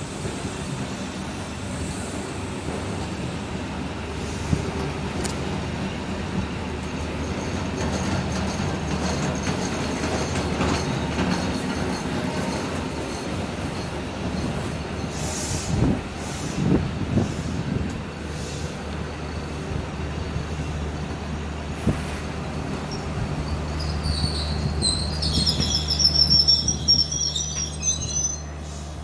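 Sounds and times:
high wavering wheel squeal: 0:22.7 - 0:29.0.

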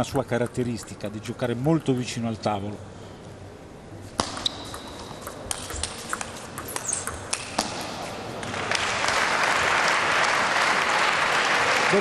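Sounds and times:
shoe squeak: 0:04.2 - 0:07.2
table tennis ball clicking: 0:04.2 - 0:07.8
crowd applause: 0:08.5 - 0:12.0.

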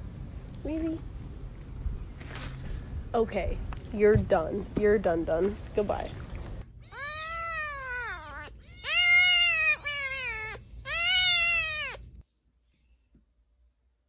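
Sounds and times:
kitten mewing: 0:06.8 - 0:12.0.

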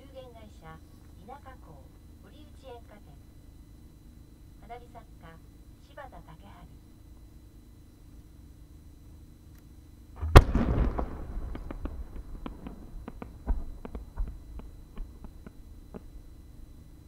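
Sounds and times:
firework launch boom: 0:10.2 - 0:14.7
firework pops: 0:10.2 - 0:16.1.

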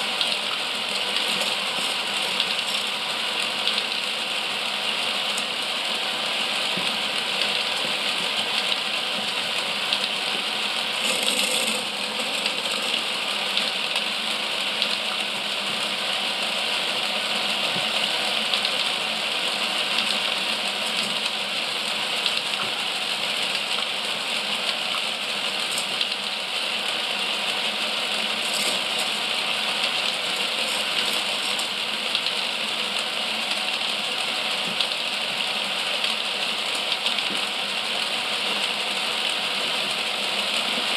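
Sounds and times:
toy roller coaster chain lift clatter: 0:11.0 - 0:13.0, 0:28.4 - 0:29.2.

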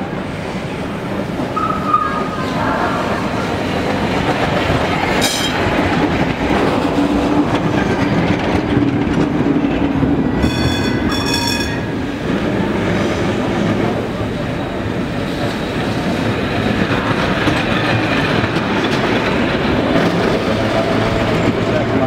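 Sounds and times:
tram wheels clattering on rails: 0:00.0 - 0:22.0.

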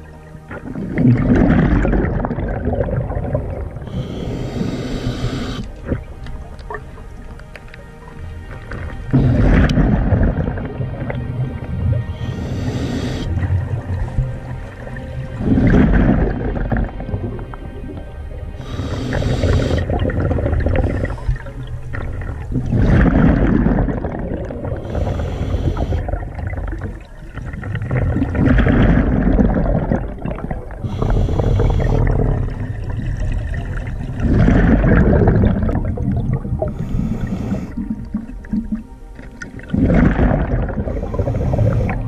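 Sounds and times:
exhaled air bubbling underwater: 0:00.0 - 0:42.0
regulator hissing on inhale: 0:03.9 - 0:05.8, 0:12.2 - 0:13.4, 0:18.6 - 0:20.0, 0:24.8 - 0:26.2, 0:30.8 - 0:32.2, 0:36.7 - 0:38.0, 0:40.9 - 0:42.0.

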